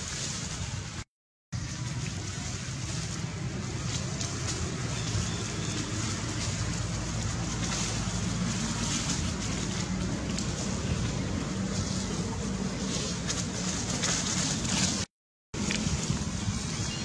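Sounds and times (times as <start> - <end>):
wind rumble on microphone: 1.6 - 17.0.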